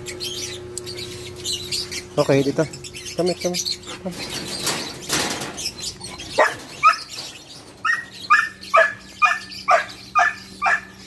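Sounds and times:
dog barking: 0:06.4 - 0:07.1, 0:07.8 - 0:11.0.

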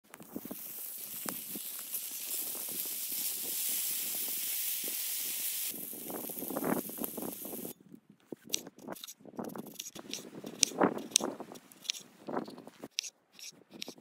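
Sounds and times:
bacon sizzling in a pan: 0:00.2 - 0:07.7.

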